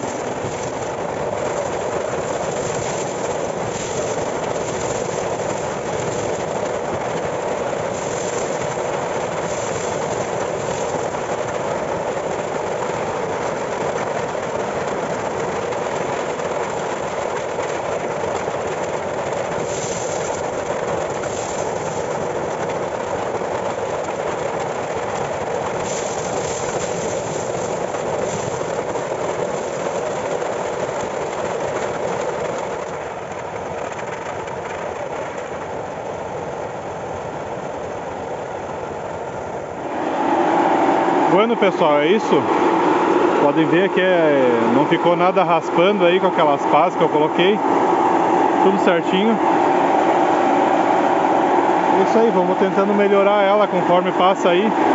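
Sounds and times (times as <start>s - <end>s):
corn sheller rattling: 0.0s - 35.8s, 48.6s - 49.4s, 52.0s - 54.7s.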